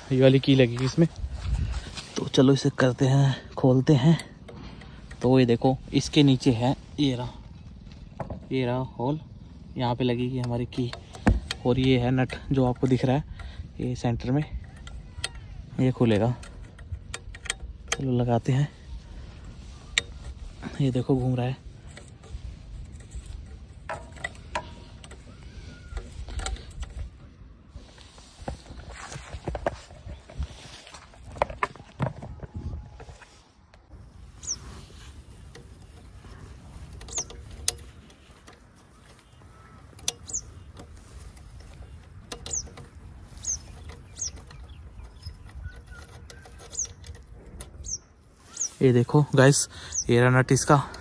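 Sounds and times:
light metallic clicks: 10.1 - 27.4, 34.4 - 48.7
bird chirping: 34.2 - 35.1, 35.8 - 48.9, 49.5 - 51.0.

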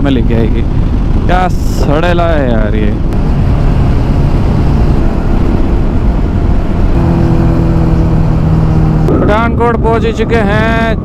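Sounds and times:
motorcycle engine drone: 0.0 - 11.0
wind rushing over microphone: 0.0 - 11.0.

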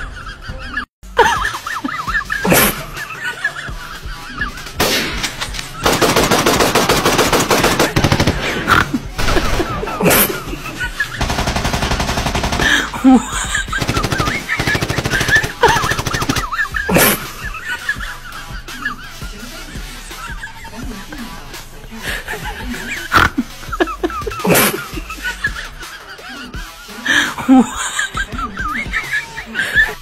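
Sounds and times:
machine-gun fire bursts: 5.8 - 10.2, 11.2 - 13.0, 13.6 - 16.6.

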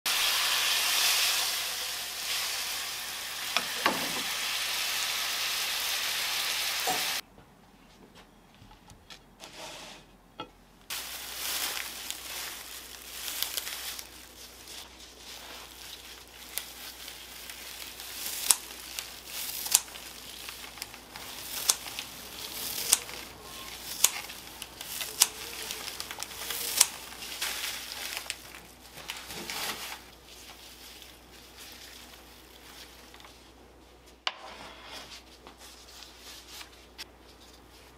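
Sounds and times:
meat sizzling in a frying pan: 0.1 - 7.2, 10.9 - 14.2
rustling of pea shoots: 10.9 - 34.2.

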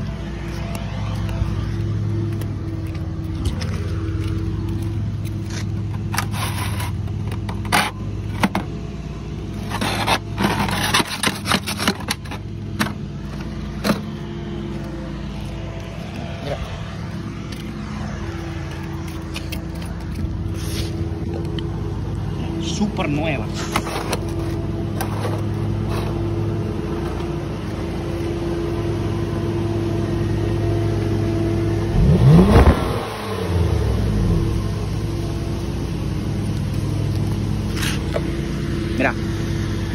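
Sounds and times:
aluminium duct crinkling and scraping: 0.0 - 8.0, 9.6 - 17.0, 23.5 - 27.3
car engine idling: 0.0 - 39.9
engine revving: 13.2 - 39.9.

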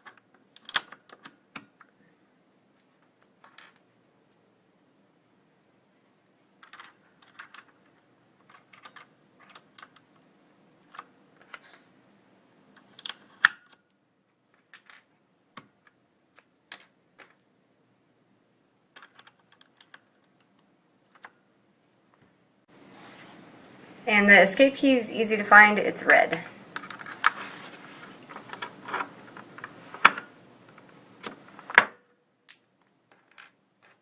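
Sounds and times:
keycaps clicking onto keyboard switches: 8.5 - 10.1.

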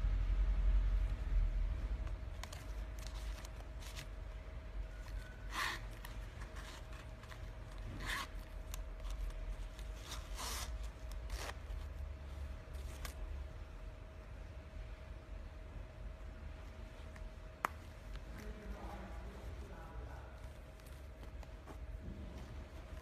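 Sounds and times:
leather rubbing and rustling: 2.0 - 13.2, 20.3 - 23.0.

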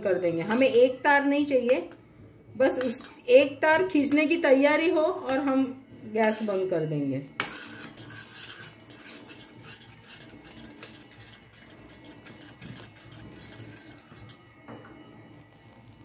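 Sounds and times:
metal spoon scraping pan: 0.0 - 15.0
syrup bubbling: 7.8 - 16.0.

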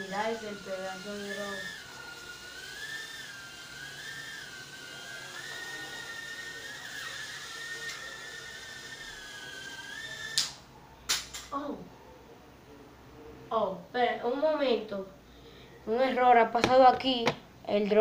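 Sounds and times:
drone propeller whine: 0.0 - 10.4.

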